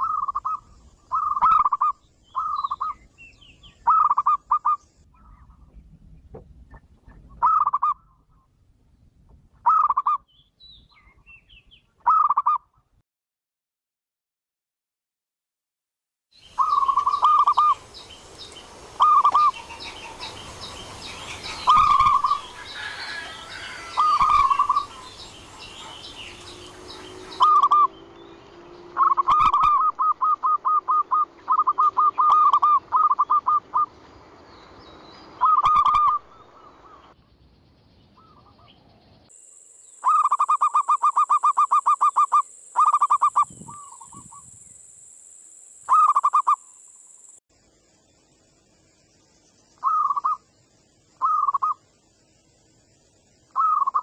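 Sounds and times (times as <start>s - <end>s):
doves cooing: 19.0s - 27.9s, 28.9s - 33.9s, 35.4s - 37.0s.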